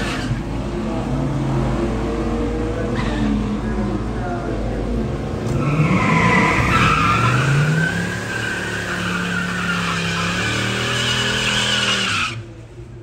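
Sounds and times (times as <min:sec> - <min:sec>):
car engine revving: 0:00.0 - 0:12.6
tyres squealing: 0:05.4 - 0:12.5.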